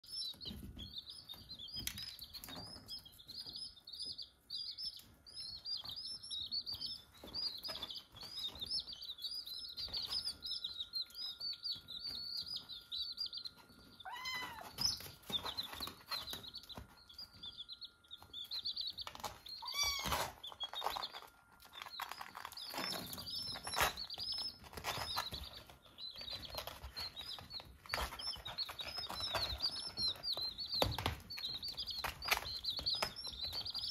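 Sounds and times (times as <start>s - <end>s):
baby chicks peeping: 0.0s - 33.9s
kitten meowing: 14.0s - 14.8s, 19.6s - 20.3s.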